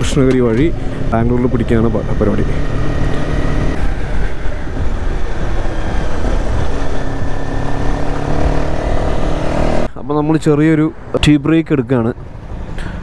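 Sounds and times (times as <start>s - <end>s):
motorcycle engine running: 0.0s - 9.9s
wind and road noise: 0.0s - 13.0s.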